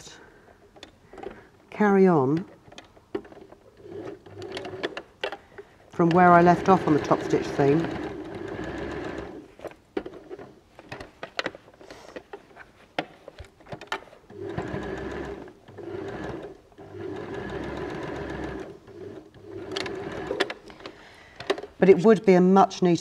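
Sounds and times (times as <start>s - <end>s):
sewing machine stitching: 2.4s - 5.0s, 6.0s - 9.5s, 14.3s - 20.8s.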